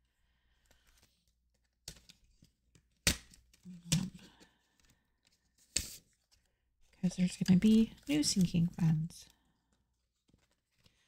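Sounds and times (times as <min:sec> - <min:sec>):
paper envelopes rustling: 0:00.4 - 0:11.0.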